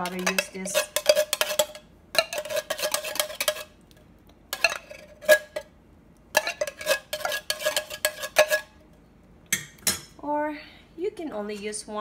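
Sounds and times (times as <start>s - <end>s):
whisk scraping metal saucepan: 0.0s - 3.8s, 4.5s - 5.6s, 6.4s - 8.8s.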